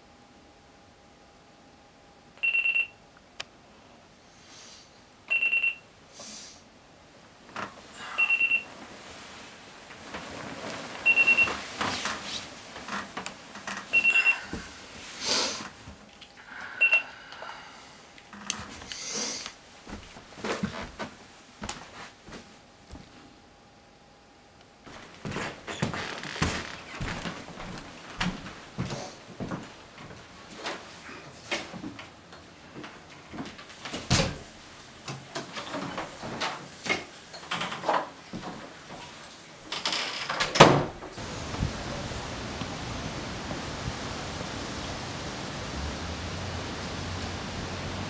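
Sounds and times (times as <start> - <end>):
rustling and handling noises: 8.5 - 16.4.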